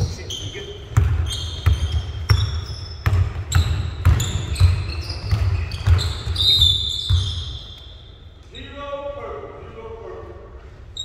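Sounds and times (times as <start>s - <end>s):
sneaker squeaks: 0.0s - 8.4s
basketball bouncing on court: 0.8s - 7.6s.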